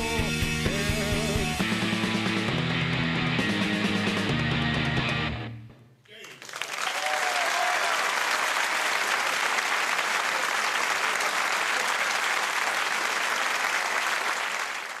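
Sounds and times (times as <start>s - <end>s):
audience applauding: 6.1s - 15.0s.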